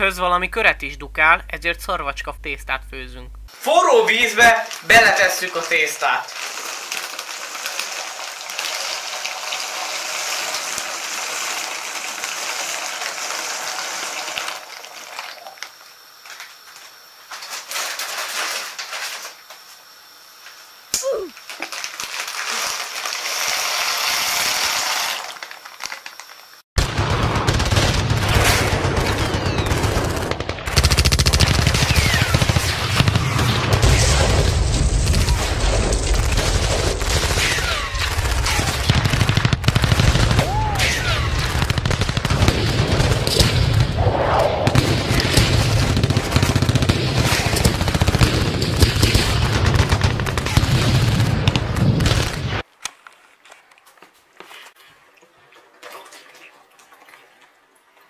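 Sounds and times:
steady low rumble: 0:00.0 - 0:03.5
bubbles bursting in boiling water: 0:06.2 - 0:15.6.

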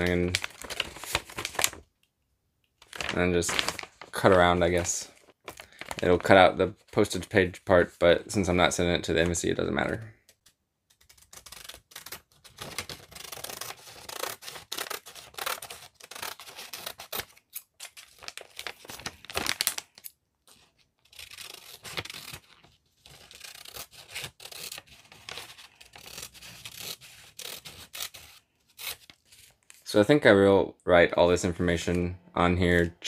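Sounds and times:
scissors cutting paper: 0:10.9 - 0:18.3, 0:20.5 - 0:29.2.

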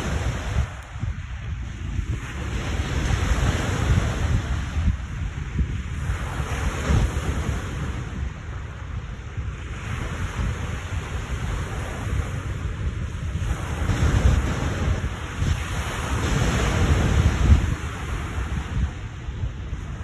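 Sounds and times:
waves crashing on shore: 0:00.0 - 0:20.0
wind buffeting microphone: 0:00.0 - 0:20.0.

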